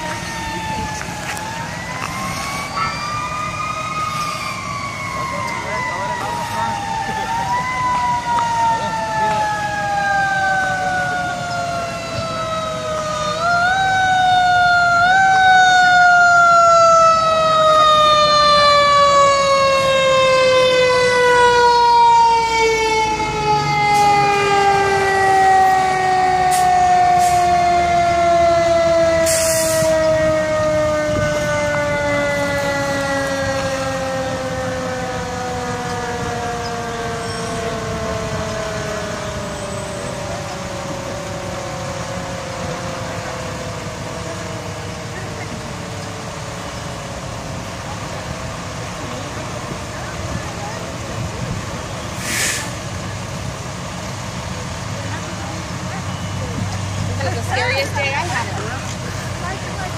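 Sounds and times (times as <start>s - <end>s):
short hiss: 29.3s - 29.8s, 52.2s - 52.8s.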